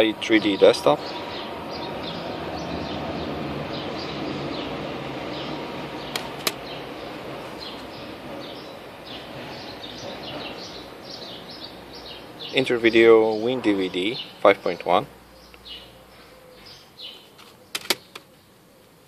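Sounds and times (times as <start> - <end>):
plastic jewel cases clicking: 17.4 - 18.3.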